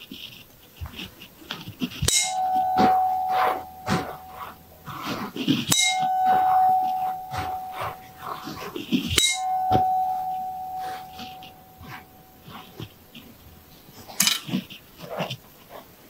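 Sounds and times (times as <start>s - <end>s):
tuning forks ringing: 2.0s - 14.6s.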